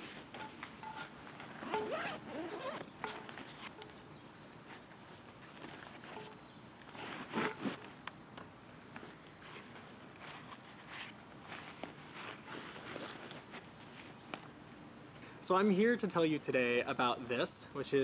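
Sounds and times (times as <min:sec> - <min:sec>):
fabric backpack rustling: 0:00.0 - 0:07.9, 0:09.4 - 0:14.2.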